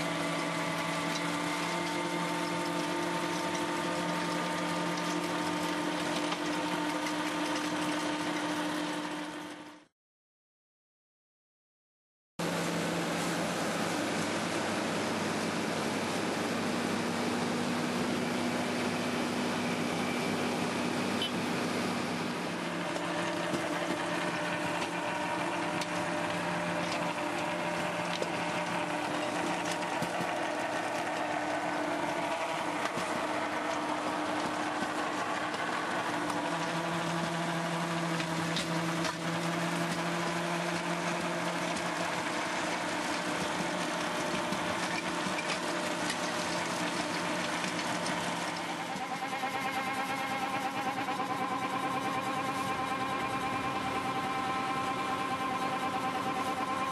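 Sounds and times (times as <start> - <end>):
rotary tiller churning soil: 0.0 - 9.6, 13.1 - 56.9
tractor engine running: 13.0 - 56.9.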